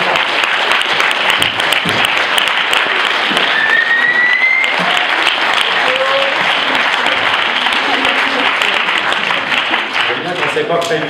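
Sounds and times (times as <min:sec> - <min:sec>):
audience applauding: 0:00.0 - 0:11.0
rising whistle: 0:03.4 - 0:04.8.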